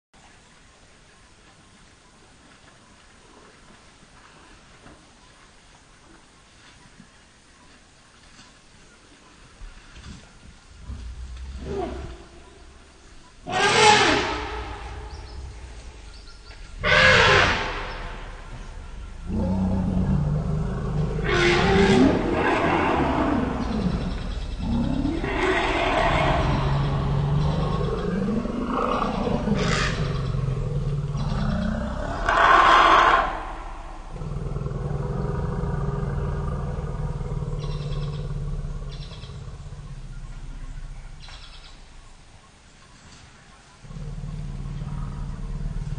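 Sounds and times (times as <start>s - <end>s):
elephant deep rumble: 9.6s - 45.9s.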